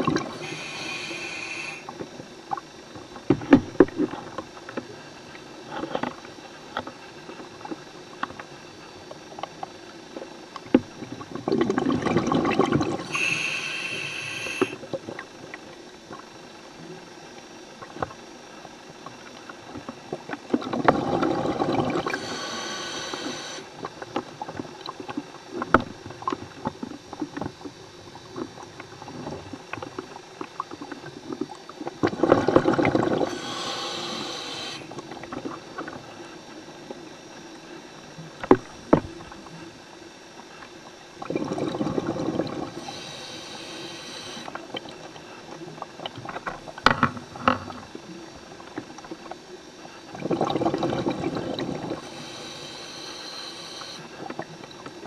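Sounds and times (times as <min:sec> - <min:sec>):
diver exhaling bubbles: 0:00.0 - 0:02.0, 0:11.3 - 0:14.9, 0:20.6 - 0:23.9, 0:32.0 - 0:35.0, 0:41.2 - 0:45.0, 0:50.1 - 0:54.8
regulator hiss: 0:00.0 - 0:02.8, 0:12.8 - 0:15.0, 0:21.3 - 0:24.4, 0:32.8 - 0:40.7, 0:41.9 - 0:45.8, 0:51.1 - 0:55.0.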